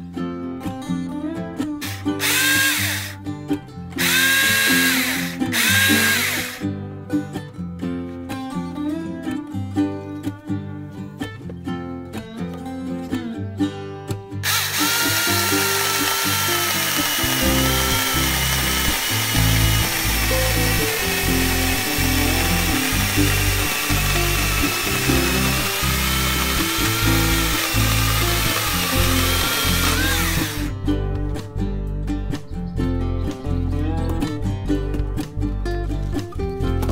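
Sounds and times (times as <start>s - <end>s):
background music: 0.0s - 36.9s
electric chainsaw cutting log: 1.8s - 3.2s, 4.0s - 6.6s, 14.4s - 30.8s.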